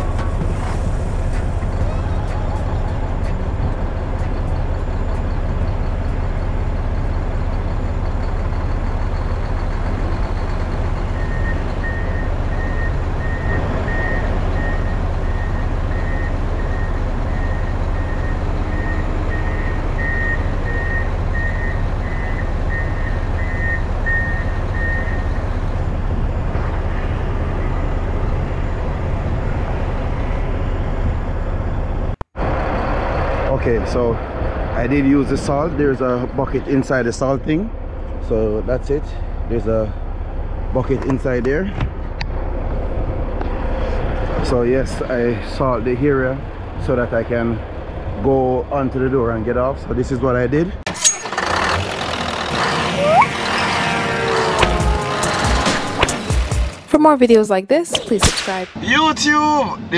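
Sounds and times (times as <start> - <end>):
truck diesel engine humming: 0.0 - 57.8
reversing alarm beeping: 11.1 - 25.6.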